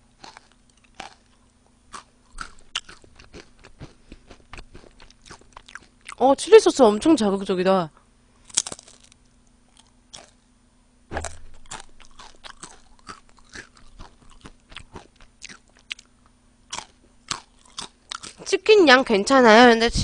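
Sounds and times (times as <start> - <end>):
chewing crunchy potato chips: 0.0 - 6.4, 8.4 - 10.5, 11.1 - 18.5.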